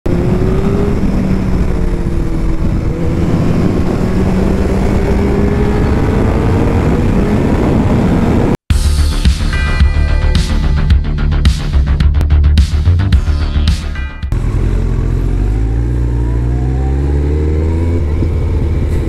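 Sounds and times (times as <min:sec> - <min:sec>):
motorcycle engine cruising: 0:00.0 - 0:08.6, 0:14.3 - 0:19.0
music: 0:08.7 - 0:14.4.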